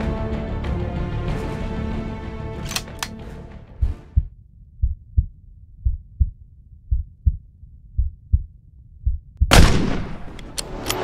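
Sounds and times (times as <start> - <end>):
heartbeat double thumps: 3.7 - 9.6.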